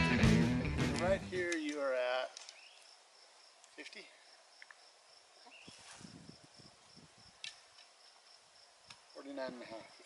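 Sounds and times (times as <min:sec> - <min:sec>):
high-pitched insect trill: 0:02.5 - 0:10.0.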